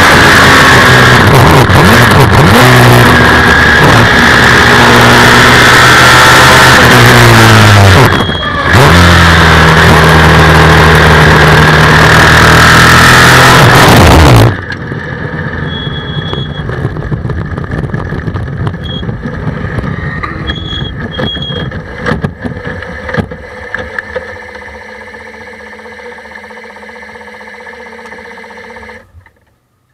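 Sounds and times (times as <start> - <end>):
motorcycle engine at high revs: 0.0 - 29.4
short high beeps: 8.0 - 8.7, 15.6 - 16.6.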